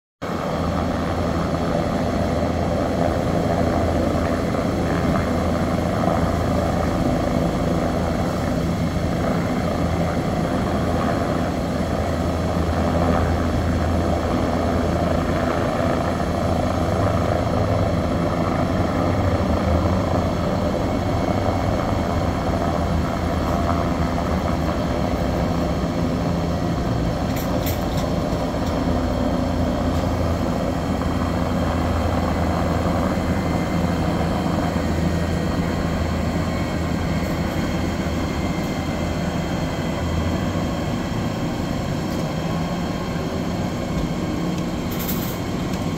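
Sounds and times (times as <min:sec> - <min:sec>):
deep mechanical hum: 0:00.2 - 0:45.9.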